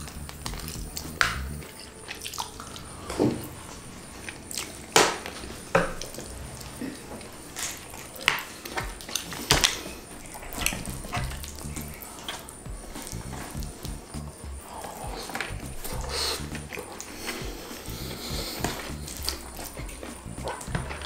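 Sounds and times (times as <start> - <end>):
wet mouth smacks and chewing: 7.9 - 14.2, 14.9 - 21.0.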